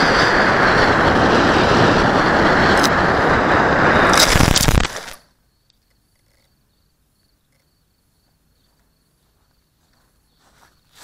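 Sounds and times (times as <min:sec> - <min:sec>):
cricket trilling: 0:03.9 - 0:11.0.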